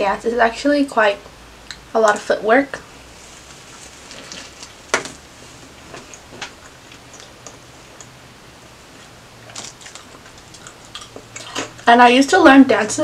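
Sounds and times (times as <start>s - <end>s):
wet chewing clicks: 5.9s - 8.2s, 9.4s - 11.9s.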